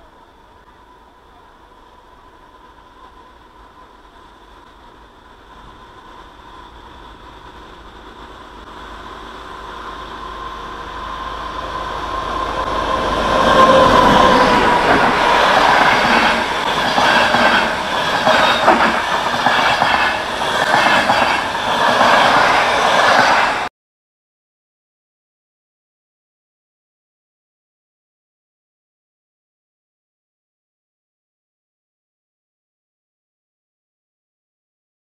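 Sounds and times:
passenger train passing: 0:00.0 - 0:23.7
train wheels clattering over rail joints: 0:13.7 - 0:23.6.

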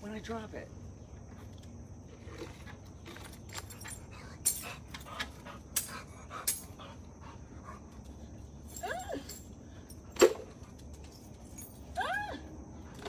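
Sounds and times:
keys jingling: 0:03.3 - 0:06.8, 0:08.6 - 0:12.0.

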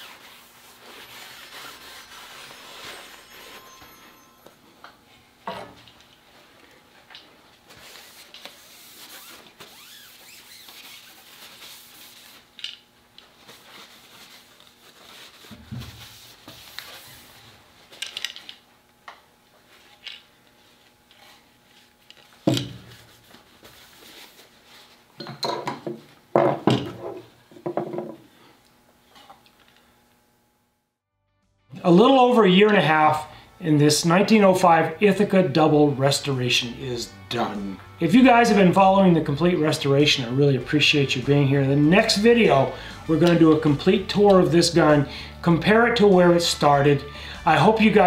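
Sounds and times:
cloth rubbing on a gun: 0:00.0 - 0:03.7, 0:07.6 - 0:18.0, 0:19.6 - 0:25.1.

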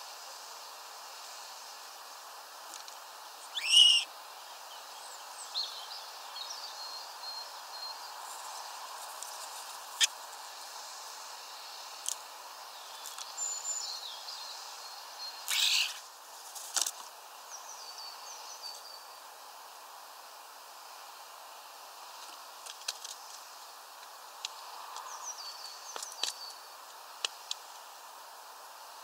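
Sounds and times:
bird harsh burst: 0:03.5 - 0:04.1, 0:15.5 - 0:16.0
starling singing: 0:03.5 - 0:04.1, 0:15.5 - 0:16.0.

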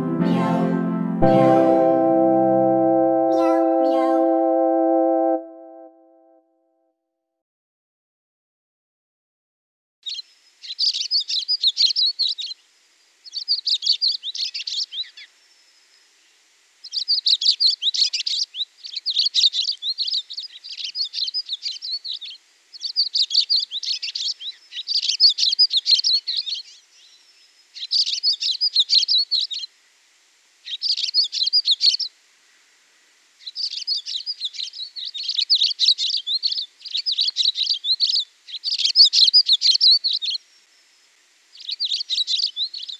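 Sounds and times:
songbird chirping: 0:33.4 - 0:42.9.

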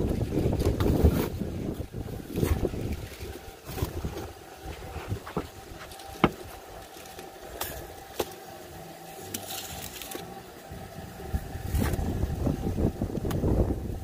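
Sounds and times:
wind rumble on microphone: 0:00.0 - 0:06.4, 0:10.7 - 0:14.0.

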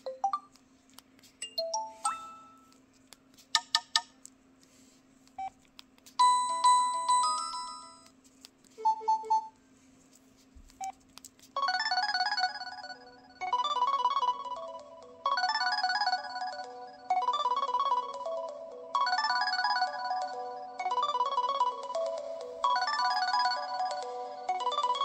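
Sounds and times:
phone ringtone chimes and blips: 0:01.4 - 0:02.7, 0:06.2 - 0:08.0, 0:11.6 - 0:25.0
ringtone melody: 0:01.4 - 0:02.8, 0:06.2 - 0:08.1, 0:08.8 - 0:09.5, 0:11.6 - 0:25.0.

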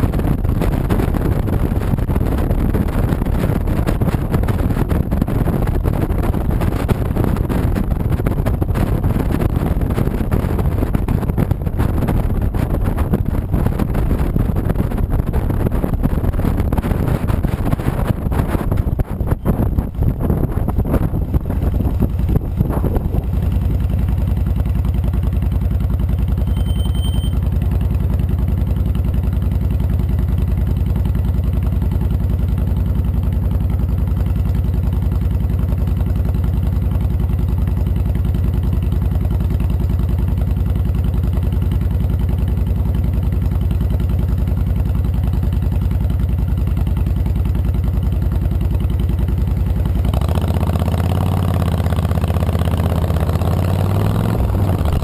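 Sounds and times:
rush of wind: 0:00.0 - 0:25.2, 0:50.0 - 0:55.0
motorcycle engine idling: 0:00.0 - 0:53.4.

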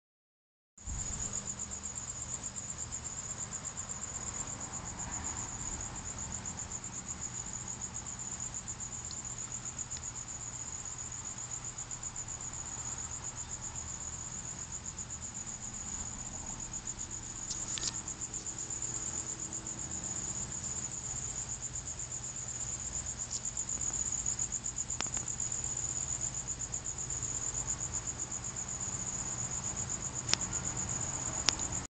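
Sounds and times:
cricket trilling: 0:00.8 - 0:31.9.

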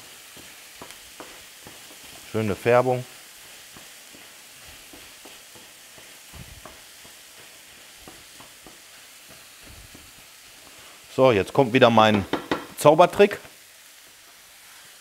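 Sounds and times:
wooden spatula scraping a pan: 0:00.0 - 0:11.2
chicken frying in a pan: 0:00.0 - 0:15.0
vegetables sizzling in a frying pan: 0:00.0 - 0:15.0.

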